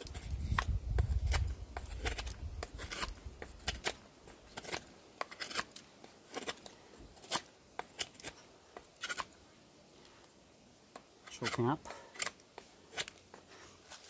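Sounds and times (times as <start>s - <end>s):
knife slicing into wood: 0.0s - 4.0s.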